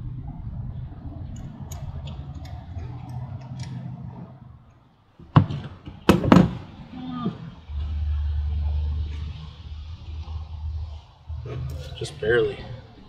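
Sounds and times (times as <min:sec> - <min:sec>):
loud sharp knocks: 0:05.3 - 0:06.8.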